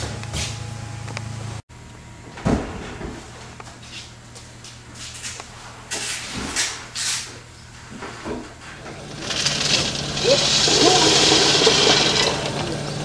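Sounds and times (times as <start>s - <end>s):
small engine idling: 8.8s - 13.0s.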